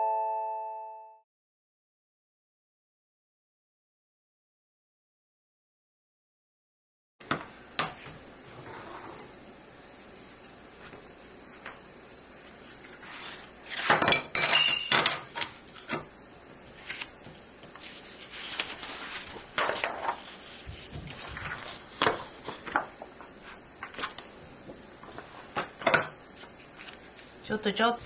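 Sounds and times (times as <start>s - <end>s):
paper sheets rustling: 12.5s - 14.0s, 16.7s - 24.4s, 25.0s - 27.4s.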